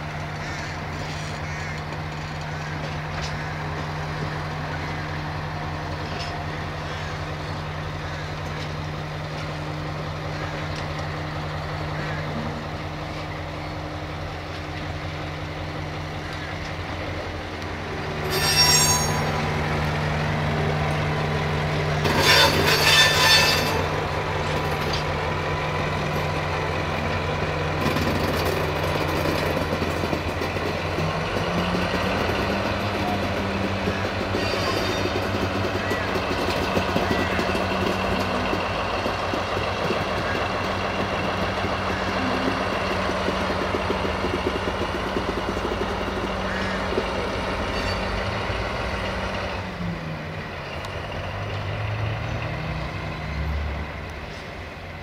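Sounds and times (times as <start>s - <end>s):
diesel locomotive running: 0.0s - 55.0s
wheels squealing on rails: 17.9s - 55.0s.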